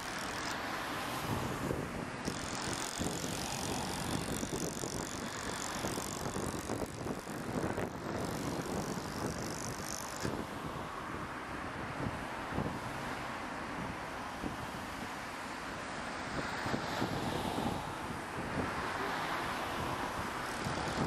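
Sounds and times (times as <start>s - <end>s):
wind buffeting microphone: 1.1s - 13.0s, 16.3s - 19.0s, 19.6s - 21.0s.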